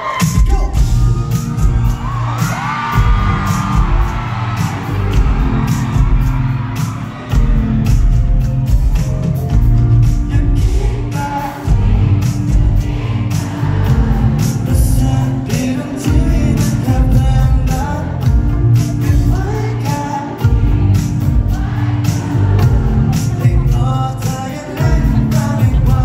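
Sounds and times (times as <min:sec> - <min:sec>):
live pop-rock band playing: 0:00.0 - 0:26.0
lead vocal singing: 0:10.0 - 0:26.0.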